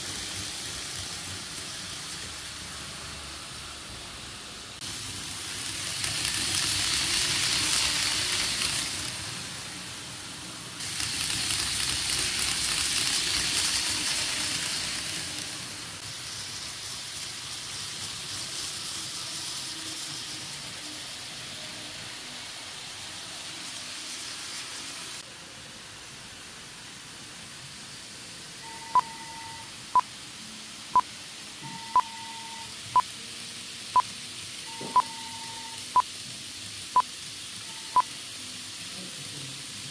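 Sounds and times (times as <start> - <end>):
model trains running on track: 0.0 - 39.9
short beeping tones: 28.6 - 29.7, 31.6 - 32.7, 34.7 - 36.0.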